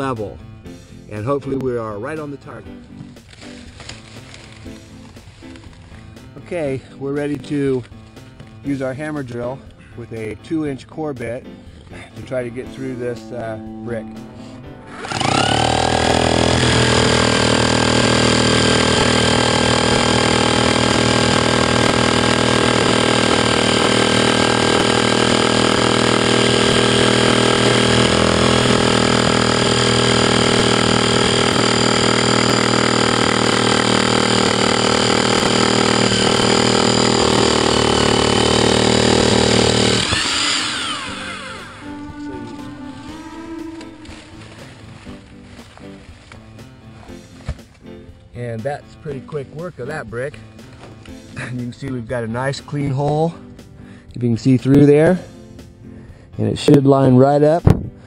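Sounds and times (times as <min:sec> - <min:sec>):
hammer drill boring through brick: 0:14.9 - 0:45.2.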